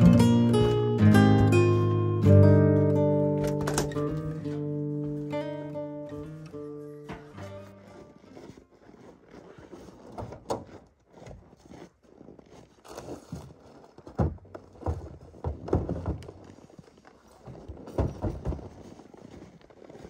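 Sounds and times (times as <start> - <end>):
boots crunching on snow: 7.0 - 14.0, 18.6 - 20.0.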